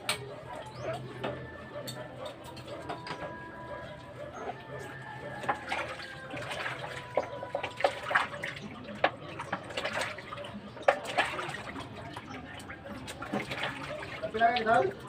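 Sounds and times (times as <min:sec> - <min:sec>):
water splashing in a basin: 0:05.3 - 0:15.0.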